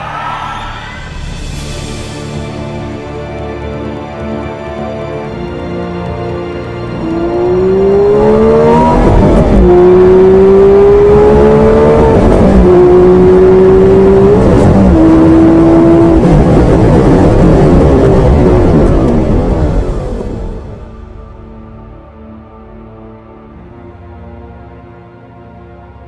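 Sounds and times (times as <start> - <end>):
car engine accelerating hard: 6.8 - 20.8.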